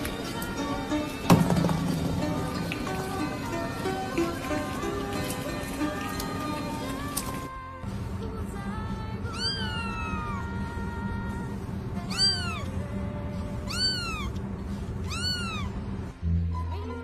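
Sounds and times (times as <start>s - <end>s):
background music: 0.0s - 9.2s
kitten meowing: 9.3s - 10.5s, 12.0s - 12.7s, 13.6s - 14.4s, 15.0s - 15.8s.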